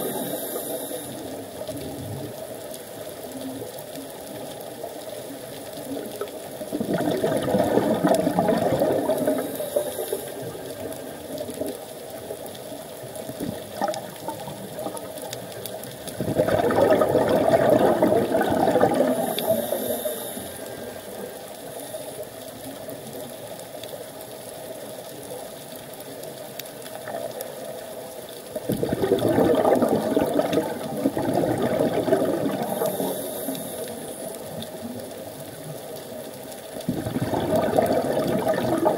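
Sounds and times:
regulator inhale hiss: 0.0 - 1.6, 9.2 - 10.8, 19.1 - 22.6, 32.6 - 34.6
bubbling exhaled air underwater: 0.0 - 2.4, 4.8 - 22.0, 28.5 - 38.9.

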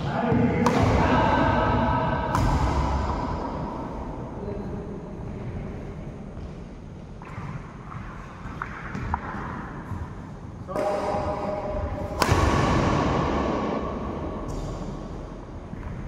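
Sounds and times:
rackets striking shuttlecock: 0.6 - 1.2, 2.2 - 3.4, 10.7 - 13.6.

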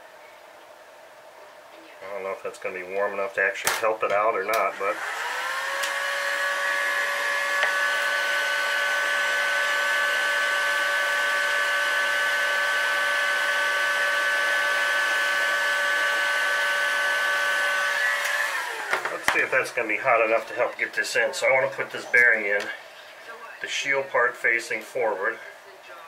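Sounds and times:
heat gun fan-motor whine: 2.1 - 22.8.

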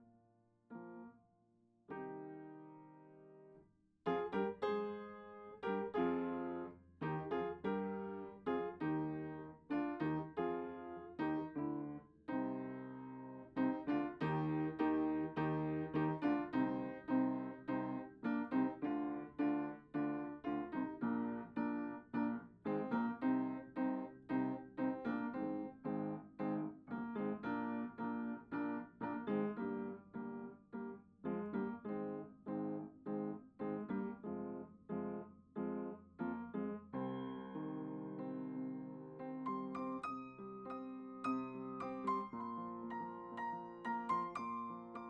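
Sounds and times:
solo piano music: 0.0 - 1.2, 1.9 - 45.0.

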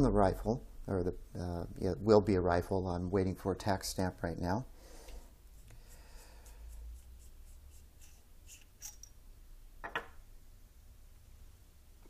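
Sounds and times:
metal cap scraping and clicking: 8.0 - 9.1.

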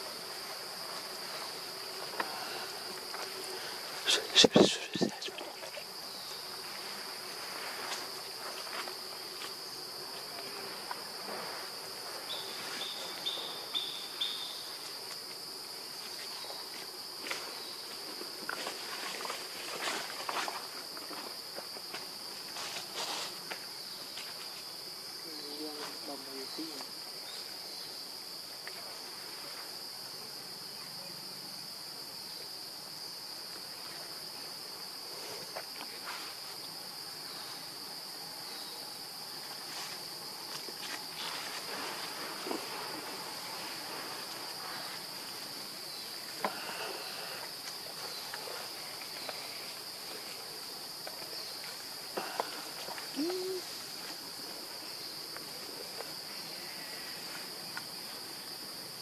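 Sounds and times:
insect chorus drone: 0.0 - 59.0
low animal call: 53.1 - 53.8.

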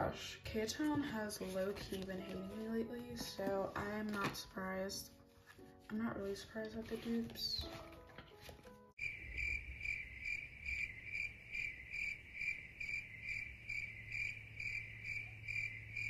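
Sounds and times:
crickets chirping: 9.0 - 16.0.

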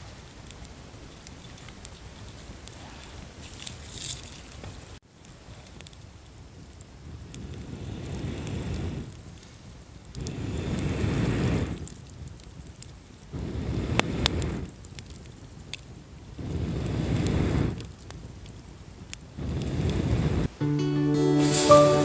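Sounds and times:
campfire crackling and popping: 0.0 - 20.6
low rushing of fire: 0.0 - 20.6.

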